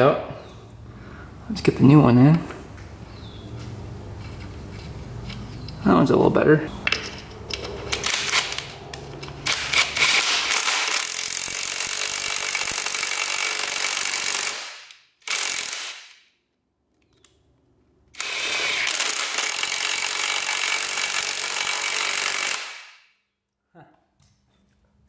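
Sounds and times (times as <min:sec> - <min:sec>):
power tool running: 0:18.1 - 0:22.7.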